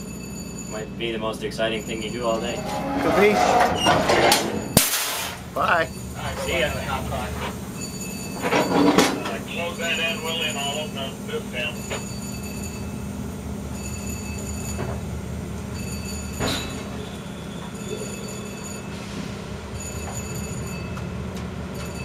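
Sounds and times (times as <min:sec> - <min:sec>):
railcars rolling on track: 0:00.0 - 0:22.0
high-pitched wheel squeals: 0:01.6 - 0:09.1
sharp metallic clank: 0:02.3 - 0:05.5.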